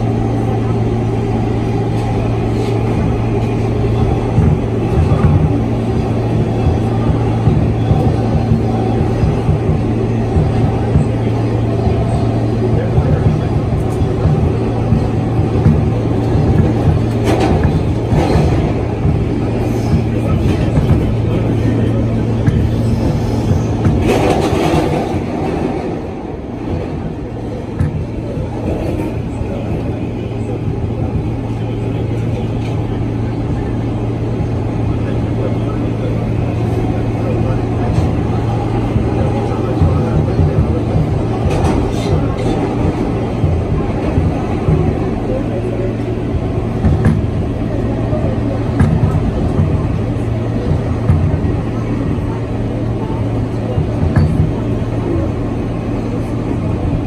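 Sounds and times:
low motor hum: 0:00.0 - 0:57.0
wheels rumbling on rail: 0:00.0 - 0:57.0.

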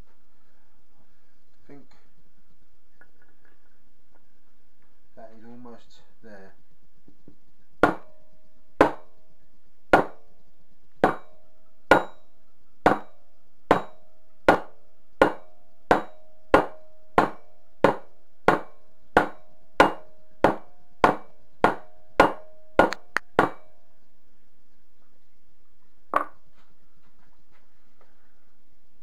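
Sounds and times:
rubber mallet striking metal: 0:07.8 - 0:08.2, 0:08.8 - 0:09.1, 0:10.0 - 0:10.2, 0:11.0 - 0:11.3, 0:11.9 - 0:12.2, 0:12.9 - 0:23.7.

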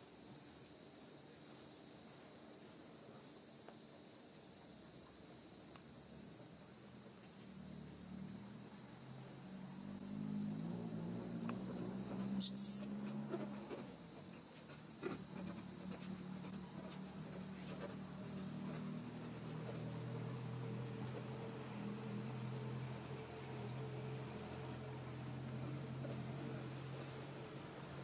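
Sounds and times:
insect chorus: 0:00.0 - 0:28.0.

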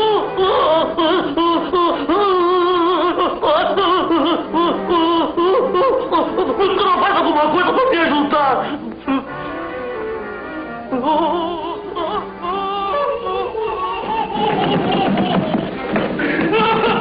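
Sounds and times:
people laughing uproariously: 0:00.5 - 0:08.3, 0:12.9 - 0:17.0.

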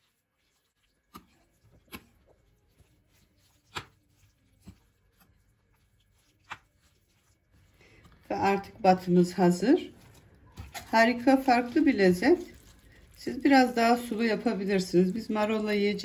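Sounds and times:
utensil stirring food: 0:00.0 - 0:16.0.

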